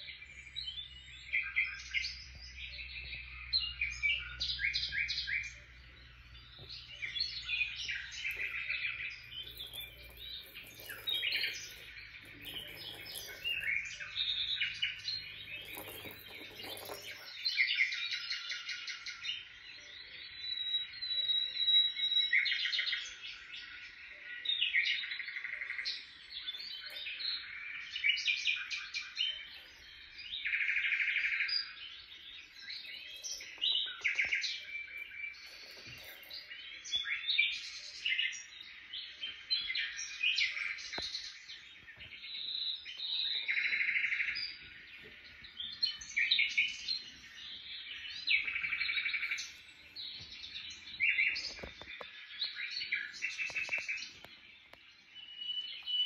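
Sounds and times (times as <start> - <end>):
songbird chirping: 0.0 - 56.0.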